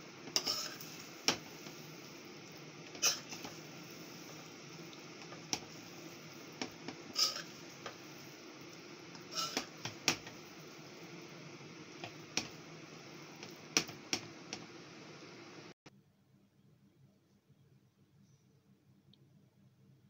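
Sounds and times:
utensils scraping a metal pan: 0:00.4 - 0:01.0, 0:03.0 - 0:03.6, 0:07.1 - 0:07.7, 0:09.2 - 0:10.2.

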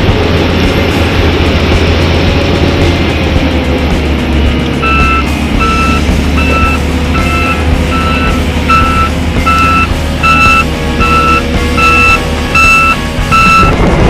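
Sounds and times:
diesel engine running: 0:00.0 - 0:14.0
reversing alarm beeping: 0:04.8 - 0:13.8.

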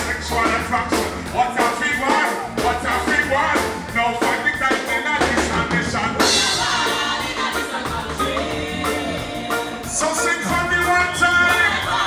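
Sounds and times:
man singing into a microphone: 0:00.0 - 0:06.3, 0:09.9 - 0:11.8
music with a steady beat: 0:00.0 - 0:12.0.

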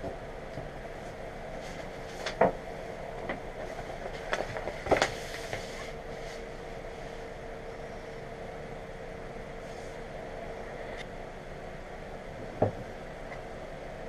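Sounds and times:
vinyl sheet rustling and tapping: 0:00.0 - 0:02.6, 0:03.2 - 0:06.5
room hum with faint tone: 0:00.0 - 0:14.0.

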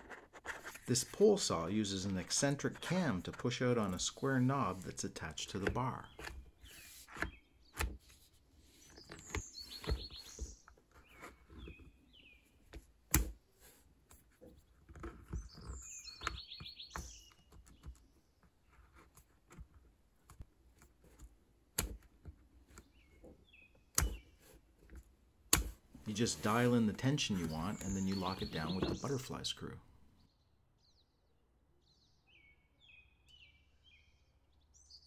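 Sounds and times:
bird chirping: 0:08.6 - 0:12.7, 0:14.5 - 0:18.8, 0:22.7 - 0:24.5, 0:26.1 - 0:35.0.

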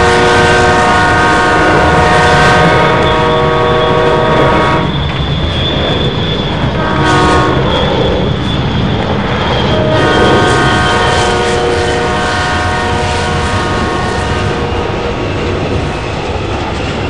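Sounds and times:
held chord of horn tones: 0:00.0 - 0:04.9, 0:09.8 - 0:14.9
continuous low rumble: 0:00.0 - 0:17.0.

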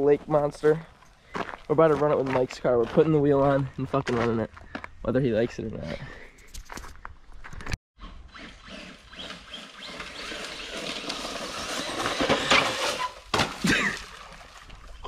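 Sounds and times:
toy truck motor buzzing whir: 0:08.0 - 0:13.2.

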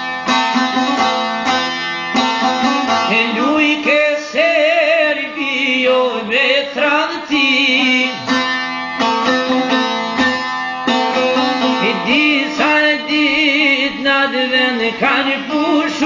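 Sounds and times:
plucked lute: 0:00.0 - 0:16.0
man singing melismatic line: 0:02.6 - 0:08.4, 0:11.6 - 0:16.0.

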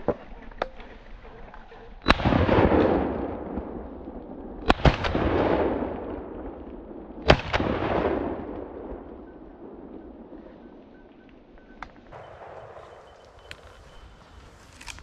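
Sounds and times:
rolling echo: 0:00.0 - 0:15.0
sharp crack: 0:02.0 - 0:09.1, 0:11.8 - 0:15.0
shotgun blasts: 0:02.0 - 0:10.4, 0:12.1 - 0:15.0.

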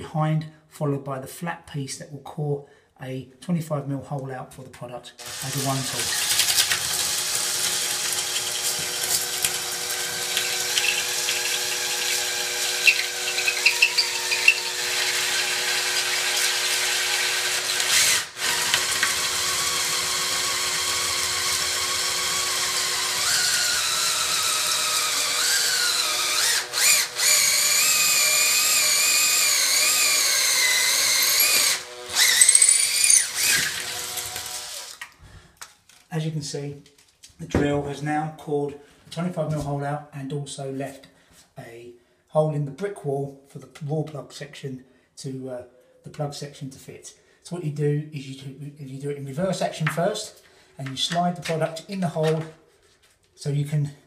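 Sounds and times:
cordless drill drilling into brick: 0:05.2 - 0:35.2.

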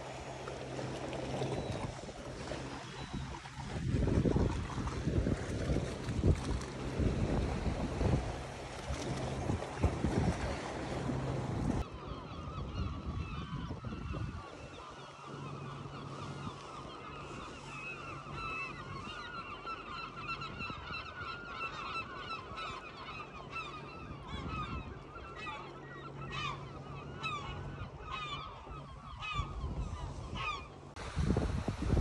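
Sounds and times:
flock of birds calling: 0:11.9 - 0:30.8.

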